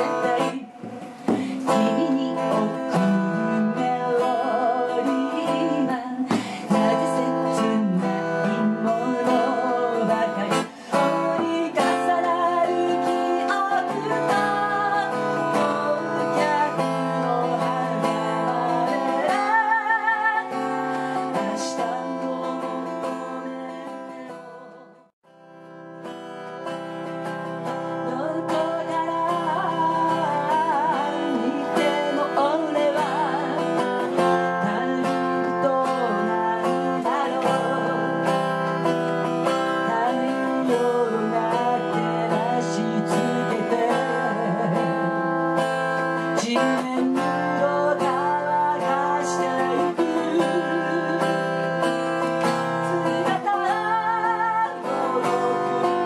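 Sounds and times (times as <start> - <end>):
woman singing: 0.0 - 25.1, 26.6 - 56.0
acoustic guitar strumming: 0.0 - 56.0.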